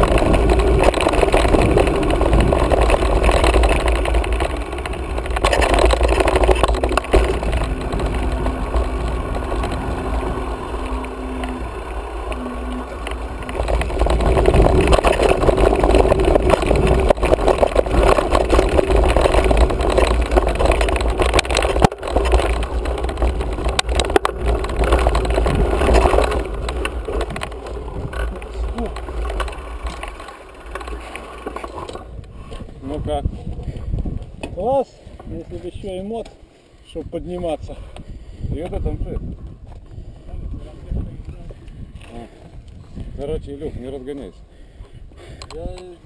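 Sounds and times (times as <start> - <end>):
sharp knocks of bike on bumps: 0.0 - 32.4
bike tyre and frame noise: 0.0 - 46.0
wind rumble on microphone: 0.0 - 46.0.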